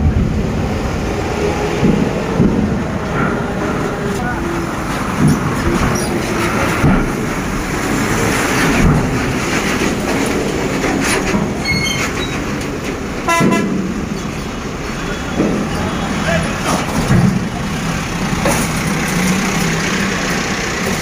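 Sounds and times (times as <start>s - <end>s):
truck engines running: 0.0s - 21.0s
vehicle horn toot: 13.3s - 13.8s.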